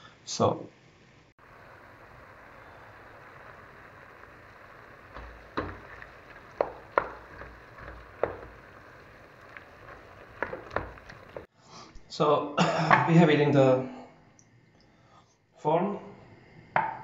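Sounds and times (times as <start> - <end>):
steady low hiss: 0.0 - 13.8
wooden spoon stirring in pot: 1.4 - 11.5
spoon knocking on metal pot: 5.1 - 8.7.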